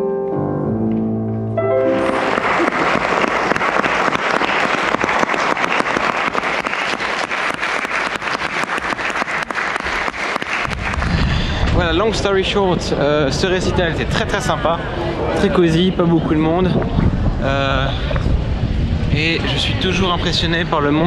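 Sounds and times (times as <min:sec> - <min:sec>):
grand piano chords: 0:00.0 - 0:04.3
audience applause: 0:01.9 - 0:11.8.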